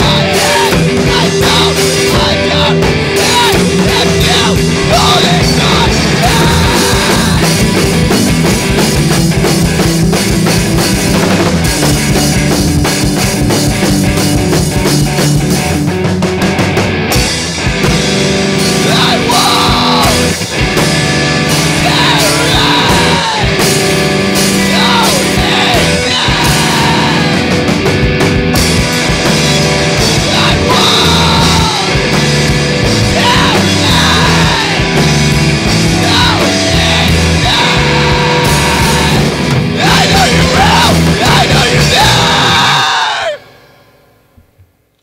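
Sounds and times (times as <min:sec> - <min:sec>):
person yelling vocals: 0:00.0 - 0:07.8, 0:18.8 - 0:20.4, 0:21.7 - 0:23.7, 0:24.6 - 0:27.5, 0:30.2 - 0:32.1, 0:33.0 - 0:43.4
rock band playing: 0:00.0 - 0:44.3.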